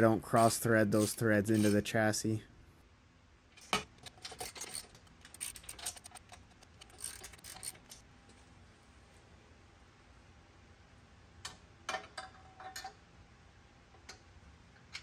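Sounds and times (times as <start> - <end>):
socket ratchet clicking: 0.4 - 1.8, 3.9 - 8.0.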